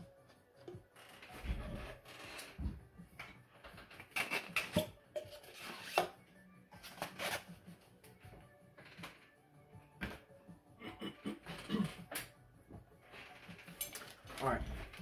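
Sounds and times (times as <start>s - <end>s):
faint background music: 0.0s - 15.0s
plastic parts clicking and scraping: 3.2s - 6.2s, 13.1s - 15.0s.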